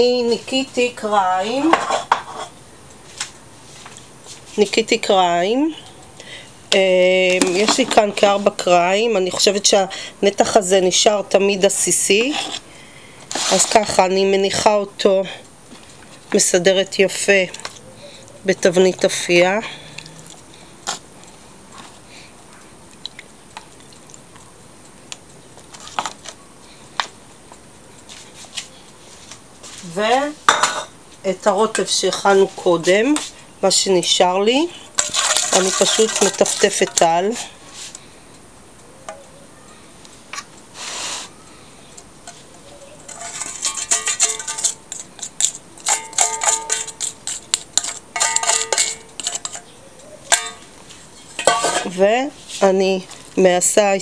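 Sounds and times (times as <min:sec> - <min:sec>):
faint steady hiss: 0:00.0 - 0:54.0
foil pan crinkling: 0:13.2 - 0:14.6, 0:35.0 - 0:38.0, 0:42.3 - 0:53.3
spoon scraping and clinking a bowl: 0:35.0 - 0:37.0, 0:43.1 - 0:52.0.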